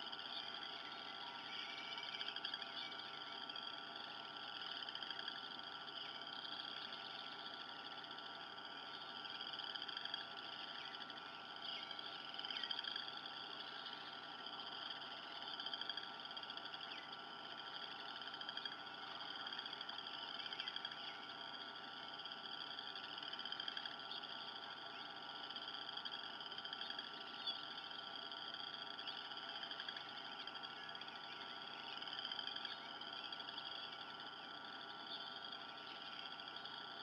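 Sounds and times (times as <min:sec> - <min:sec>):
steady hum: 0:00.0 - 0:37.0
high-pitched trilling animal calls: 0:00.4 - 0:03.8.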